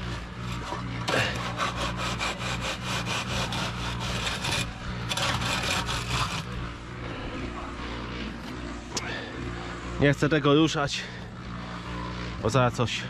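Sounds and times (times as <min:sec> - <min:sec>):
screed board scraping wet concrete: 0:00.0 - 0:06.7
low machine hum: 0:00.0 - 0:13.0.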